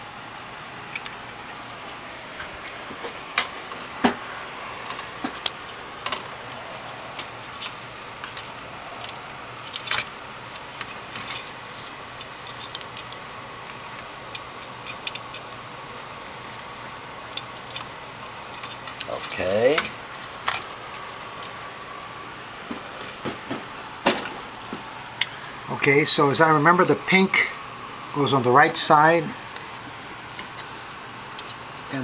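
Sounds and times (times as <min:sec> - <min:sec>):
steady low hiss: 0:00.0 - 0:32.0
small parts clicking and rattling: 0:04.8 - 0:21.6.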